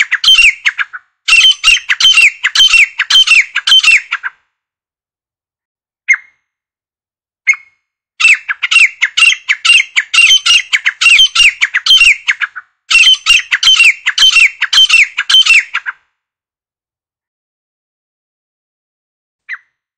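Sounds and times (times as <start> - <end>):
francolin calling: 0.0 - 4.3, 8.2 - 15.8.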